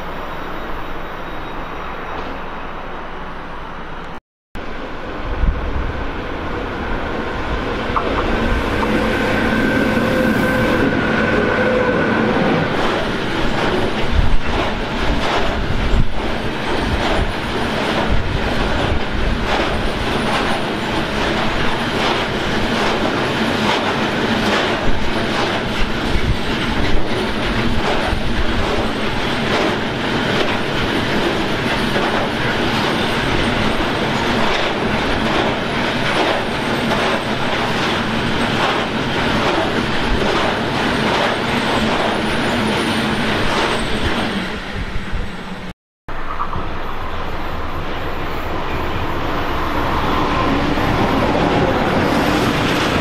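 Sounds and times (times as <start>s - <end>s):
train wheels clattering over rail joints: 12.7s - 44.3s.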